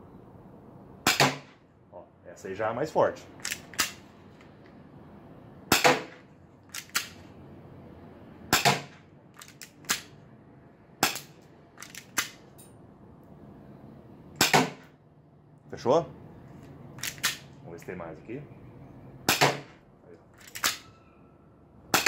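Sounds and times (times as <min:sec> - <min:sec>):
airsoft pistol shots: 0:01.0 - 0:01.6, 0:05.7 - 0:06.2, 0:08.5 - 0:09.0, 0:11.0 - 0:11.3, 0:14.4 - 0:14.9, 0:19.2 - 0:19.8
pistol slide clicks: 0:06.7 - 0:07.2, 0:11.0 - 0:12.4, 0:17.0 - 0:17.4, 0:20.4 - 0:20.9.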